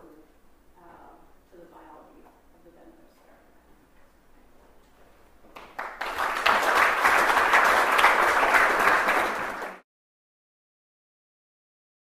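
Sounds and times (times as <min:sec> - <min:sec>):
audience applauding: 0:05.6 - 0:09.8.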